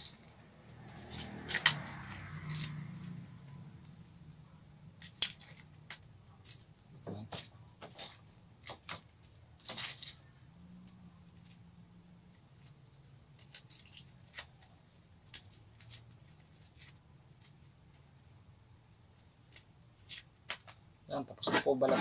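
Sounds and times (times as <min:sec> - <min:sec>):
knife scratching garlic skin: 0:00.8 - 0:02.8, 0:13.4 - 0:17.6, 0:21.4 - 0:22.0.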